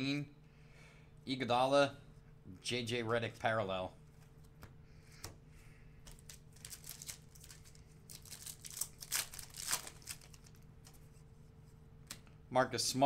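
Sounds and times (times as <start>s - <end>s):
foil wrapper crinkling and tearing: 6.1s - 10.6s.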